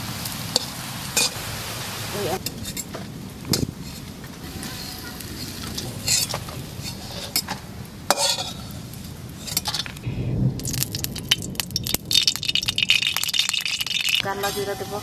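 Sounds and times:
oil crackling: 0.0 - 14.8
hot oil sizzling: 0.0 - 15.0
metal spatula scraping a pan: 3.6 - 8.7, 9.4 - 9.9, 14.2 - 15.0
oil pouring into pan: 10.6 - 14.2.

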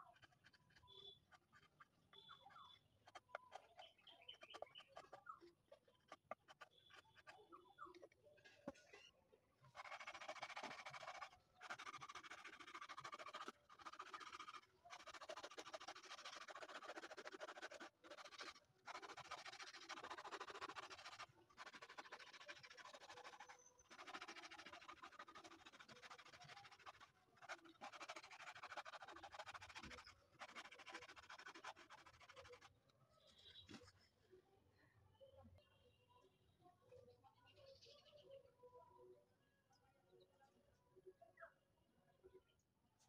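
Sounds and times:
sanding disc rasping on wood: 9.8 - 32.7.

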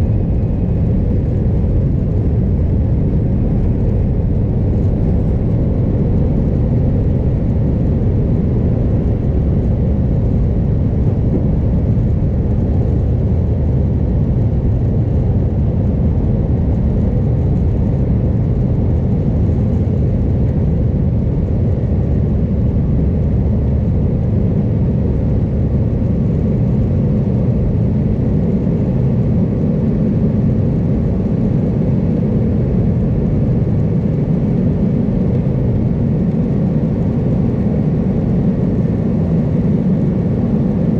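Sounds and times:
jet engines rumbling in cabin: 0.0 - 40.9.

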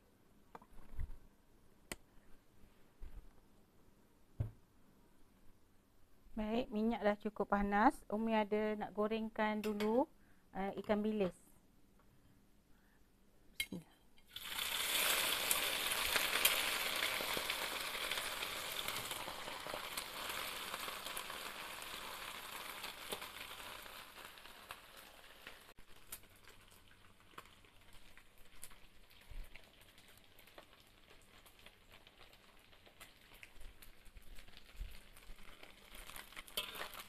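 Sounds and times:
fish sizzling in hot oil: 14.3 - 37.0
oil crackling: 14.3 - 37.0.

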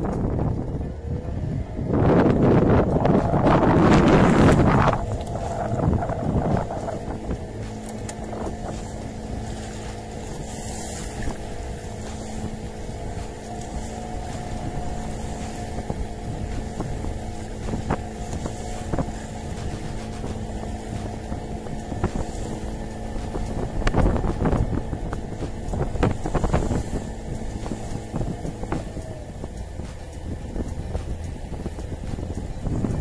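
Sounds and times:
boat motor running: 0.0 - 33.0.

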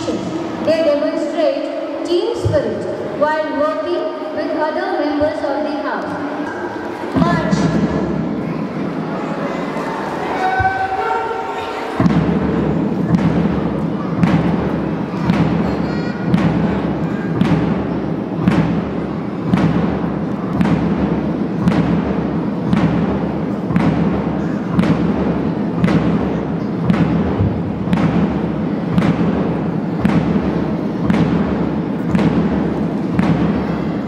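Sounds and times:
drum beating marching beat: 6.5 - 9.0, 11.8 - 34.0.

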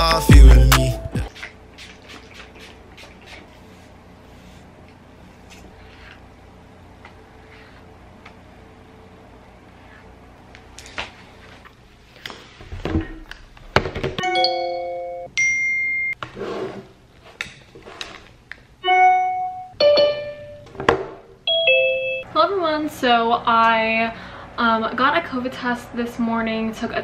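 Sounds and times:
chime-like keyboard music: 0.0 - 1.2, 14.2 - 16.1, 18.8 - 20.6, 21.5 - 22.2.

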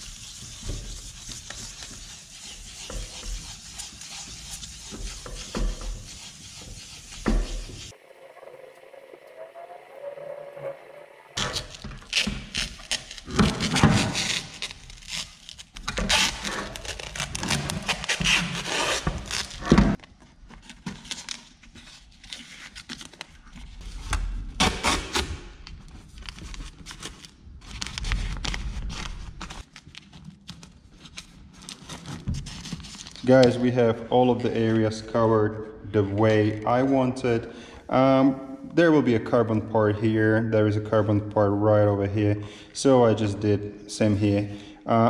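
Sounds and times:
masking tape pulled off roll: 11.4 - 20.0, 24.5 - 33.2
paper crinkling: 25.8 - 33.5.

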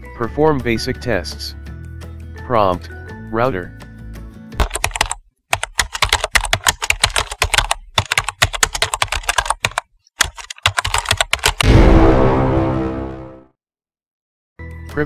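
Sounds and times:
keyboard typing: 4.6 - 11.6.

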